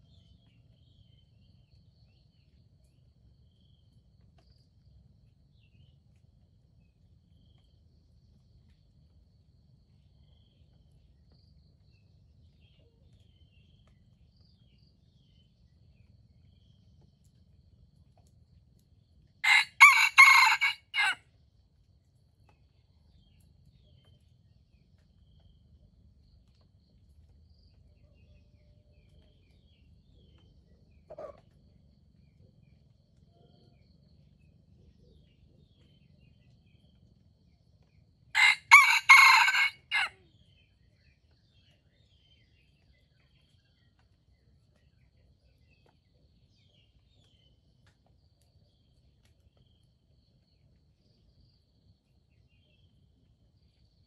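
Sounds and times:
rooster crowing: 19.4s - 21.2s, 38.4s - 40.2s.

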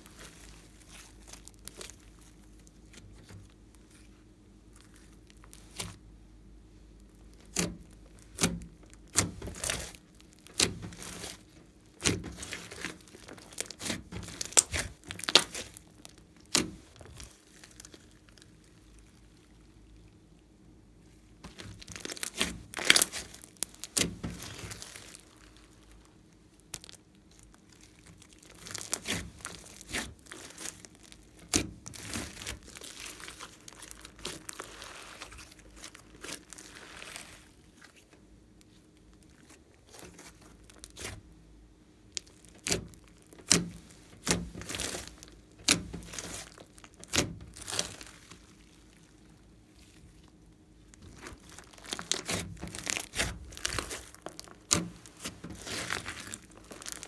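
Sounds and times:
slime crackling and popping: 0.0s - 6.1s, 6.9s - 20.5s, 21.4s - 41.3s, 42.0s - 57.0s.

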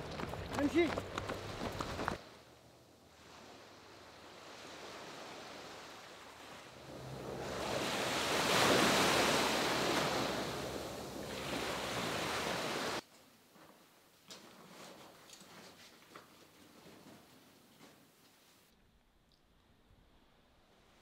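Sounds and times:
sea waves surging: 0.0s - 13.0s.

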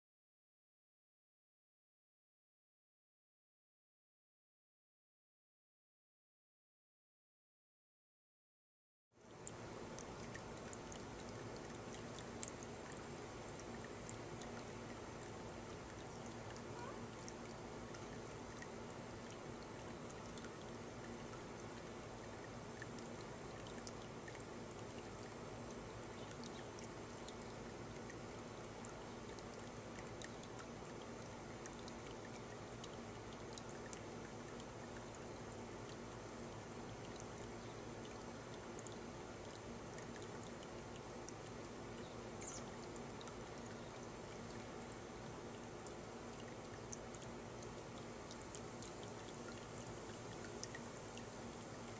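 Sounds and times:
faint water trickling into basin: 9.2s - 51.9s.

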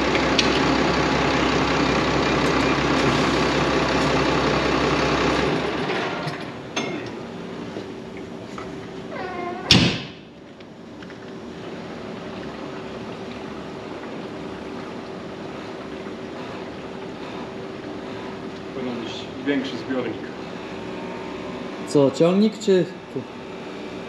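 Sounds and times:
diesel tractor engine idling: 0.0s - 12.2s.

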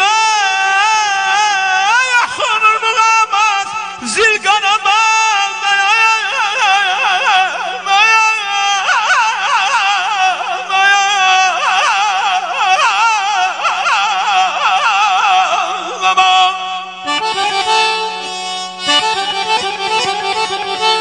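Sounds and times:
person singing wordless trills: 0.0s - 21.0s
held instrumental notes: 17.0s - 21.0s.

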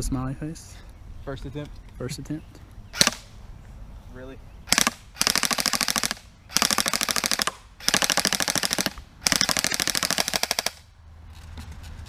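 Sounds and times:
airsoft rifle firing bursts: 4.7s - 10.8s.

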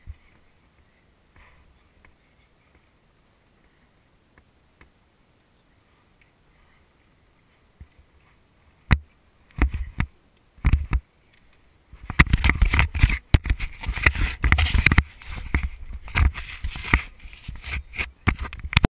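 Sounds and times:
camera handling clicks and scrapes: 10.7s - 18.9s.

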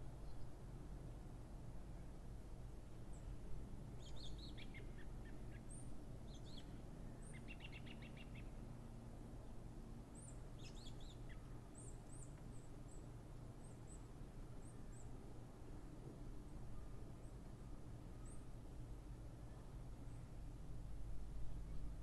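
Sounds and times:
low background rumble: 14.9s - 22.0s.

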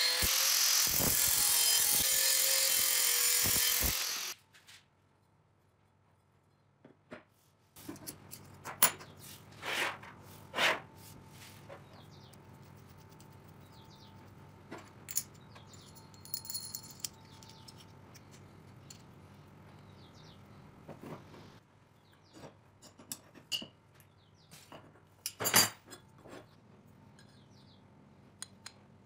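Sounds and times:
bolt nuts and washers clinking: 15.0s - 19.1s.

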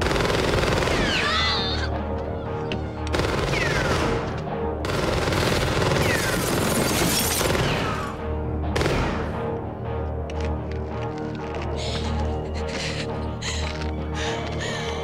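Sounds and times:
people screaming: 1.0s - 1.9s.

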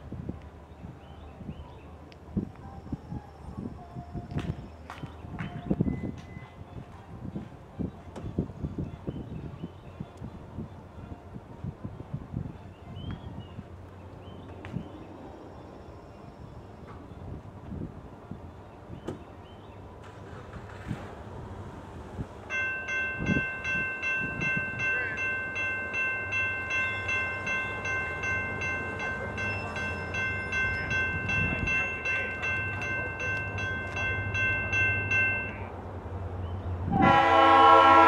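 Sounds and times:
diesel locomotive rumble: 0.0s - 38.0s
crossing signal bell ringing: 22.5s - 35.7s.

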